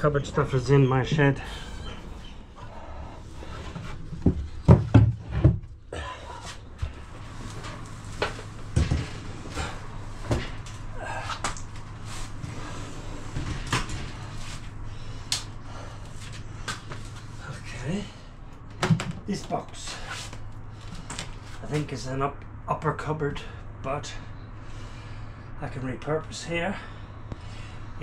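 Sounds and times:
knocks of wooden panels: 4.2s - 5.7s.

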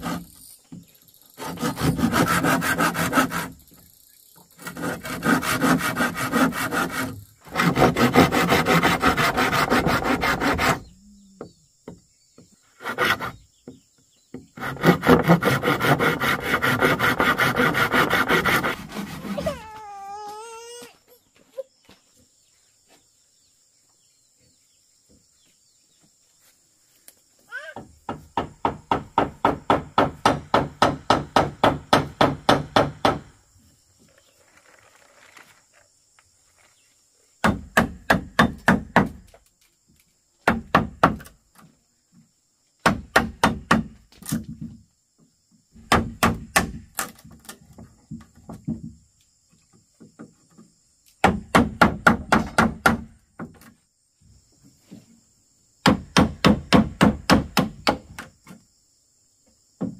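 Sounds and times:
tool striking bamboo: 28.1s - 33.3s, 37.4s - 39.3s, 40.4s - 41.4s, 42.8s - 44.6s, 45.8s - 47.6s, 51.2s - 53.8s, 55.8s - 58.6s.

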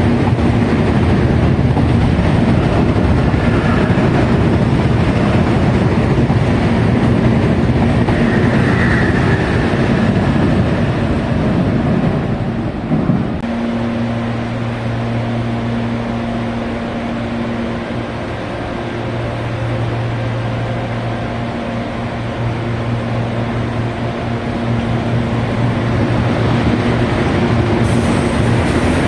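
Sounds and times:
electric train passing: 0.0s - 29.0s.

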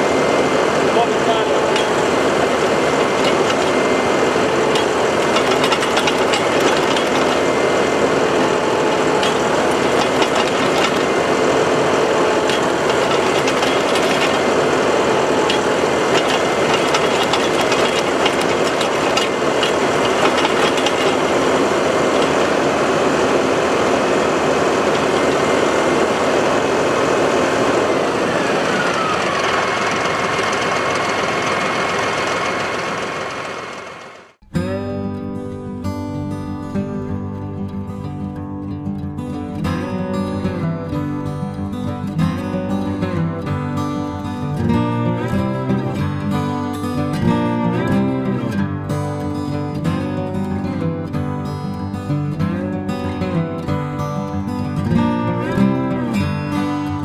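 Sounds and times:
auger whine: 0.0s - 35.4s, 39.6s - 57.0s
tractor engine drone: 0.0s - 35.6s, 39.2s - 57.0s.

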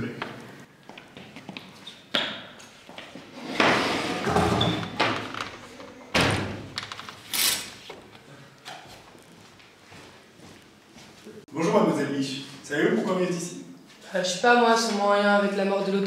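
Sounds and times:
door slamming: 6.1s - 6.9s.

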